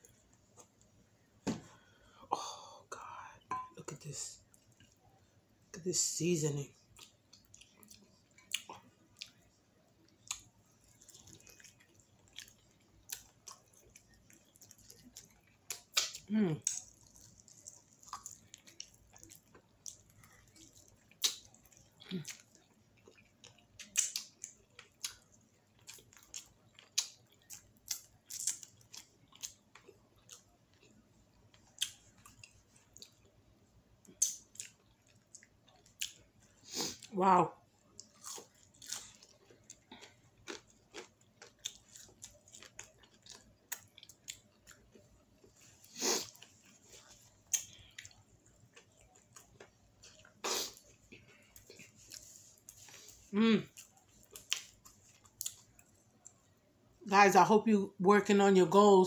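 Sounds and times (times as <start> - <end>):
wet chewing: 10.0 - 33.3, 37.8 - 56.5
lip smacks: 53.7 - 56.4.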